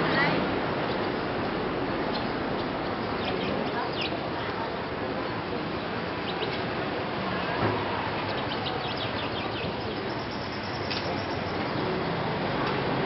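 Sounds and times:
murmur of voices: 3.0 - 13.0
motorbikes passing: 5.6 - 13.0
high bird chirps: 8.3 - 11.7.

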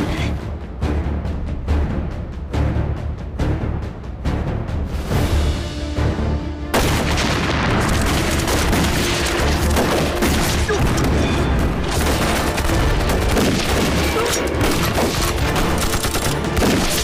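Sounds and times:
low background music: 0.0 - 17.0.

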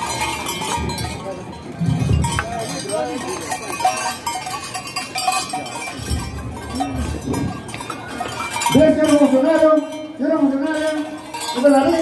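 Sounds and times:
crowd noise: 0.0 - 12.0
man's voice through loudspeaker: 8.7 - 12.0.

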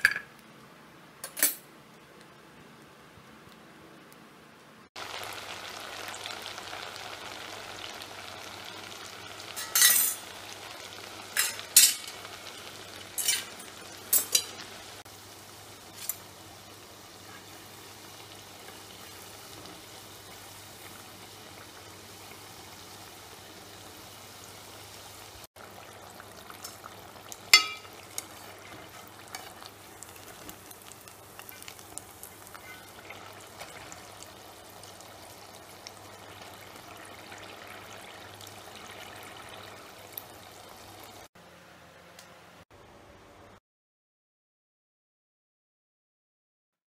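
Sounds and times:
food sizzling in hot oil: 5.0 - 41.3
metal spoon clinking on pot: 27.6 - 28.0.

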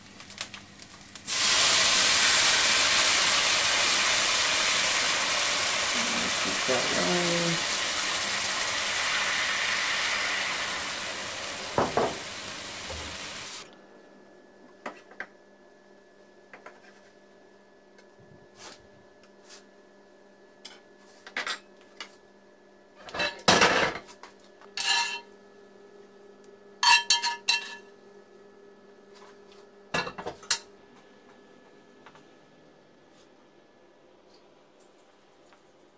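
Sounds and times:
meat juices sizzling in skillet: 0.1 - 13.6.

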